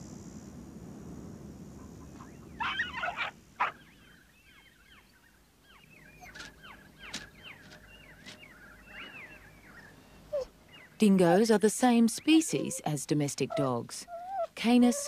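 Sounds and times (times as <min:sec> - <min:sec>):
harsh bird calls: 0:02.1 - 0:11.0.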